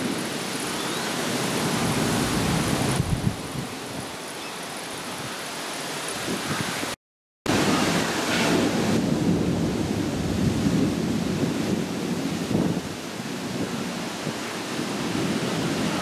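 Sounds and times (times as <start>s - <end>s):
windy hiss: 0.0s - 16.0s
thunder rumbling: 7.5s - 16.0s.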